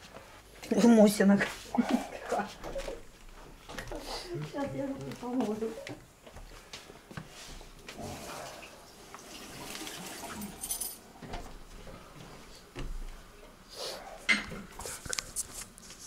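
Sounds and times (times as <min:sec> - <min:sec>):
hands washing at a sink: 0:07.2 - 0:11.0
tap water running: 0:08.0 - 0:10.7.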